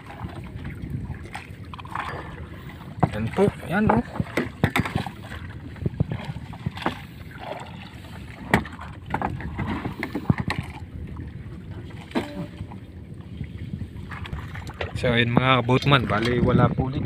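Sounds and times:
boat engine rumble: 0:00.0 - 0:17.0
net and floats knocking on hull: 0:01.3 - 0:07.7, 0:08.4 - 0:10.8.

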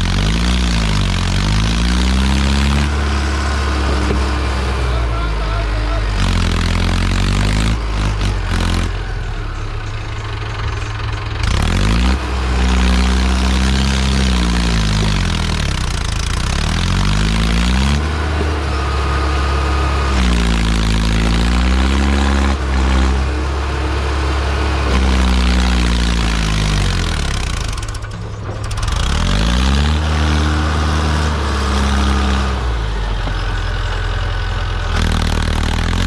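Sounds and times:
tractor diesel engine labouring: 0:00.0 - 0:36.0.

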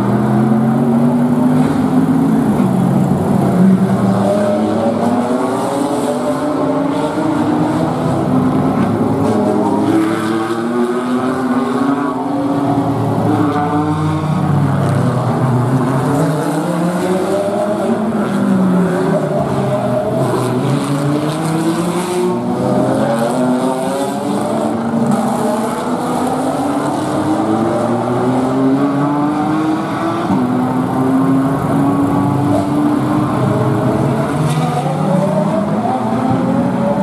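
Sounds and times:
race car engines revving: 0:00.0 - 0:37.0.

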